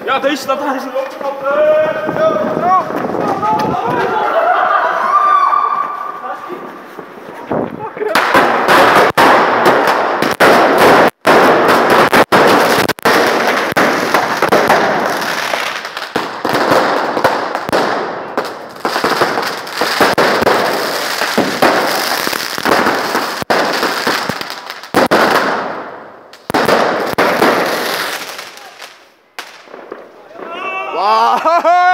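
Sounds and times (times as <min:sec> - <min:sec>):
fireworks popping: 0:00.0 - 0:04.1, 0:05.8 - 0:30.5.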